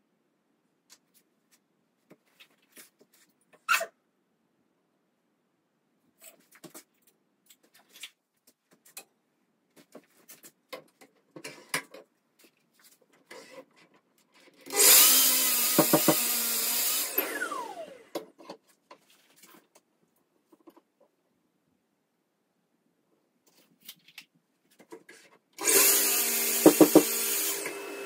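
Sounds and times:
mitre saw cutting wood: 0:14.7 - 0:18.0, 0:25.6 - 0:28.0
wooden knocks: 0:15.8 - 0:16.2, 0:26.6 - 0:27.1.

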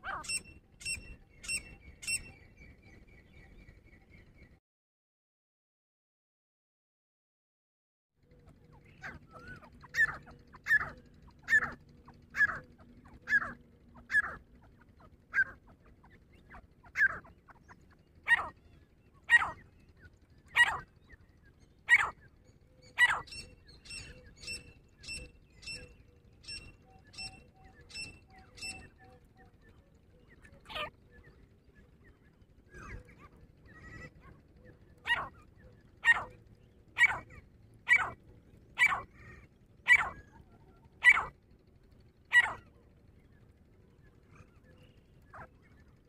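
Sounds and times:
francolin calling: 0:00.0 - 0:02.4, 0:08.9 - 0:18.6, 0:19.2 - 0:29.0, 0:32.8 - 0:38.2, 0:38.8 - 0:41.5, 0:42.3 - 0:42.7.

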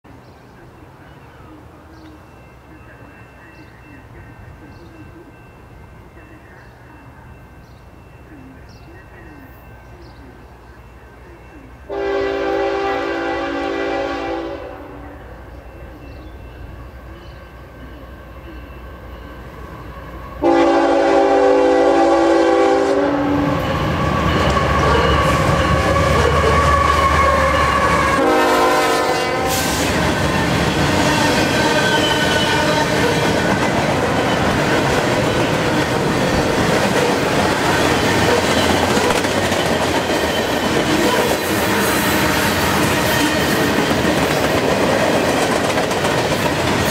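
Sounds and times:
locomotive horn blasts: 0:11.9 - 0:15.3, 0:20.4 - 0:33.3.

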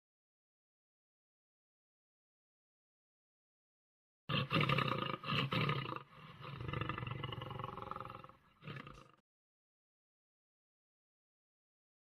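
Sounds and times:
big cat roaring: 0:04.3 - 0:09.2.

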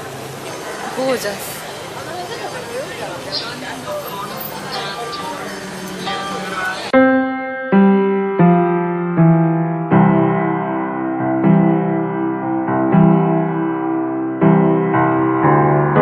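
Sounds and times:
slow piano chords: 0:03.8 - 0:16.0.

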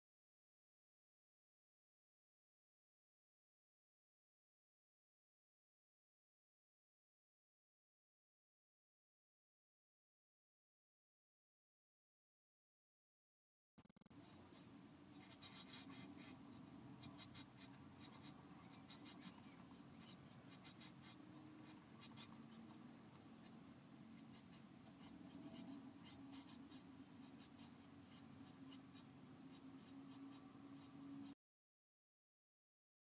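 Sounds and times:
chicks scratching and rustling: 0:14.0 - 0:31.0
steady low hum: 0:14.0 - 0:31.4.

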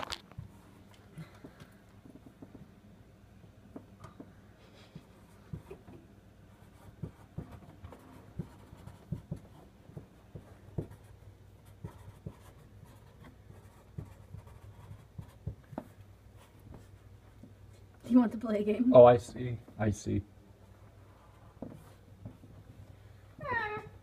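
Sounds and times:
pen tapping and scratching: 0:05.0 - 0:06.0, 0:06.6 - 0:17.6.

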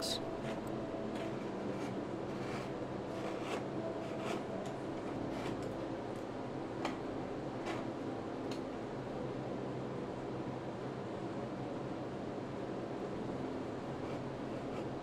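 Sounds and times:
carving gouge scraping wood: 0:00.4 - 0:04.5.

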